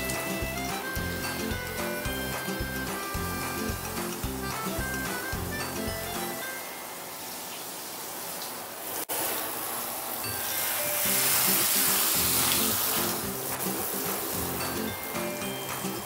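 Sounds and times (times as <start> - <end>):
background music: 0.0 - 7.0, 10.2 - 16.0
shower head spraying water: 0.0 - 16.0.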